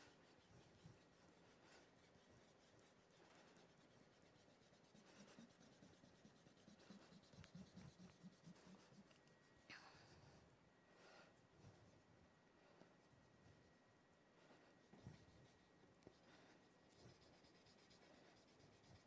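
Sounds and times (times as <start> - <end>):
chalk scratching on board: 0.0 - 9.3, 14.8 - 19.0.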